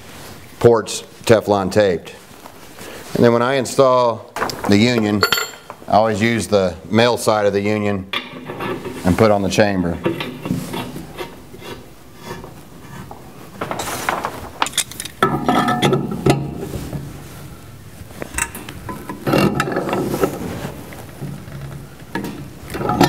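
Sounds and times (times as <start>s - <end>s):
pliers scraping metal pipe: 8.1s - 9.2s, 10.0s - 13.1s, 18.3s - 20.4s, 22.2s - 23.0s.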